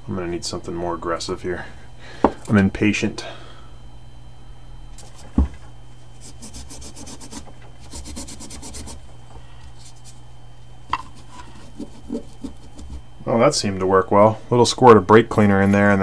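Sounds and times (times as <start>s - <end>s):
brush scrubbing metal: 6.2s - 9.1s, 10.9s - 13.0s.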